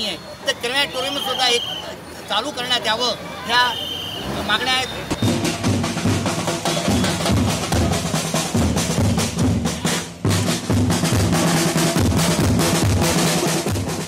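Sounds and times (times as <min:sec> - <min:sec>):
barrel drums marching rhythm: 0:04.9 - 0:14.0
side drum: 0:05.1 - 0:14.0.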